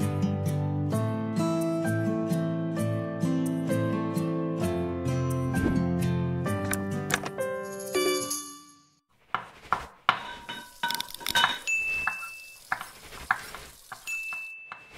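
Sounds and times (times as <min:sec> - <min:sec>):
clinks and taps of dishes: 0:10.1 - 0:12.9
high ding: 0:14.1 - 0:14.9.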